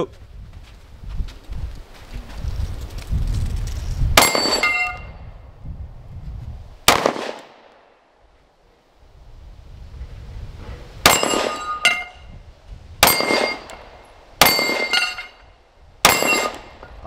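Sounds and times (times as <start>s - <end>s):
pistol shots: 6.9s - 7.9s, 11.0s - 11.7s, 13.0s - 15.2s, 16.0s - 16.8s
steel plate clanging: 11.1s - 12.2s, 14.4s - 15.5s, 16.1s - 16.7s.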